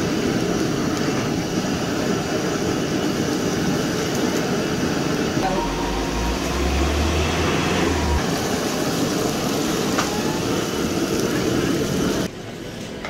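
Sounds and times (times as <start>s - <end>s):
fish deep-frying in bubbling oil: 0.0s - 13.0s
low rumble: 5.4s - 8.8s.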